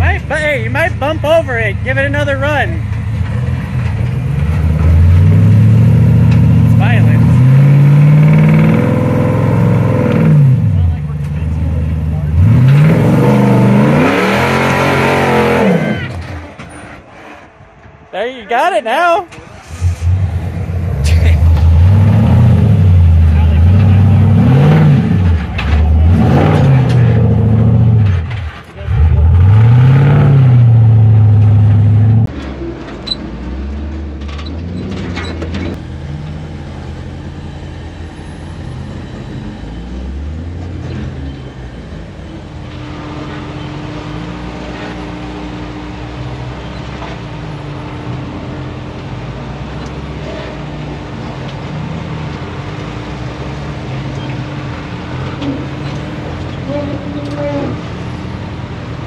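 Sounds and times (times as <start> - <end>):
truck engine revving hard: 0.0 - 17.3, 19.4 - 41.9.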